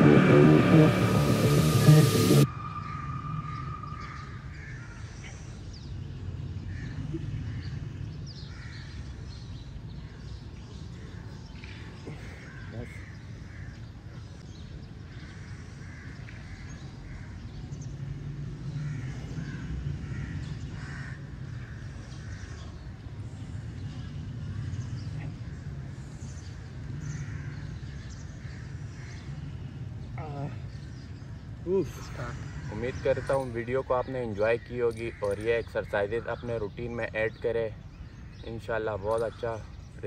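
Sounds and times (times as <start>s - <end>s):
crows cawing: 2.6s - 5.4s, 15.1s - 17.4s, 18.8s - 22.6s, 27.0s - 29.3s, 31.9s - 37.0s.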